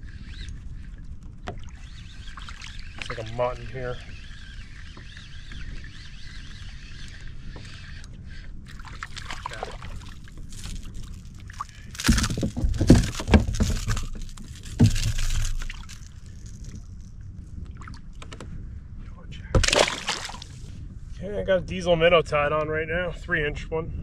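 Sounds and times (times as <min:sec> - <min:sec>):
water sloshing against kayak hull: 0:08.7 - 0:18.5
knocks and rustling of gear: 0:10.2 - 0:17.2.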